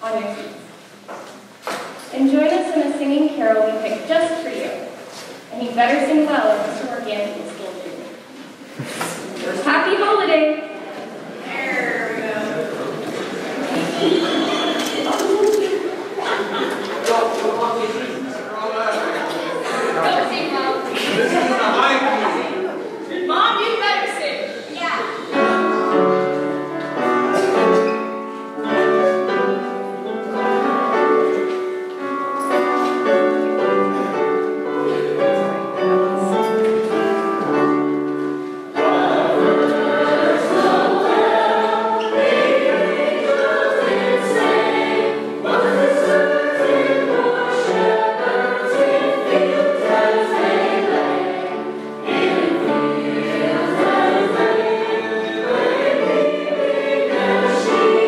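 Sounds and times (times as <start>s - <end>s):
children's choir singing: 10.6s - 18.4s, 25.1s - 58.0s.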